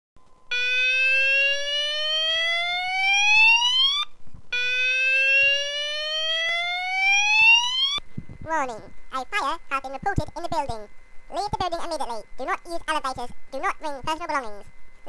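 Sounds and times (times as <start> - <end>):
fire alarm rising whoop: 0.5 - 8.0.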